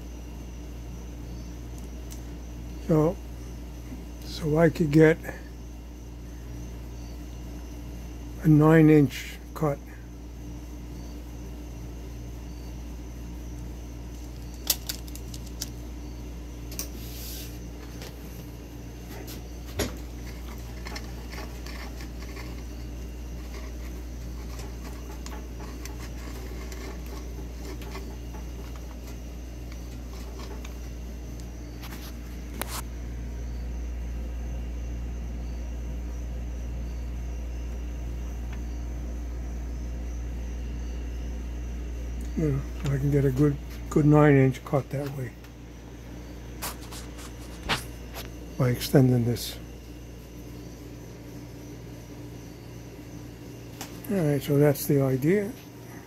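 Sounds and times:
low background hum: 0:00.0 - 0:56.0.

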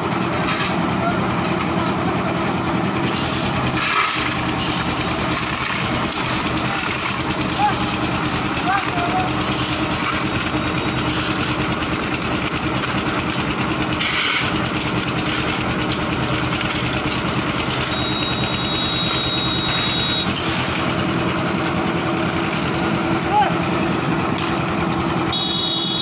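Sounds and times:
concrete mixer engine hum: 0:00.0 - 0:26.0
short scraping burst: 0:14.0 - 0:15.6
high steady squeal: 0:17.7 - 0:20.5.

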